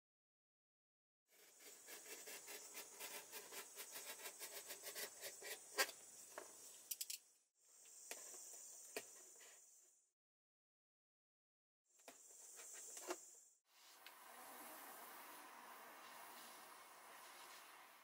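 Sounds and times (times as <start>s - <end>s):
box cutter slicing cardboard: 1.4s - 5.9s.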